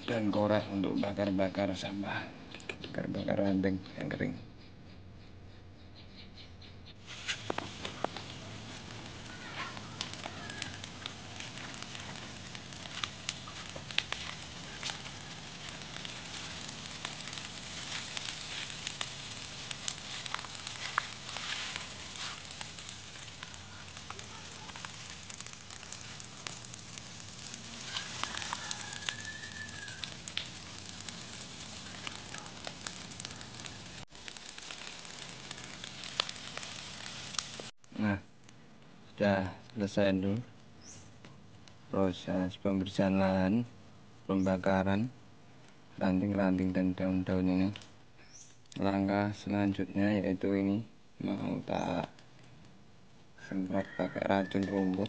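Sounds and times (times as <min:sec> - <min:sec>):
fire hiss: 0:07.0 - 0:38.2
brush pile fire crackling and popping: 0:07.0 - 0:55.0.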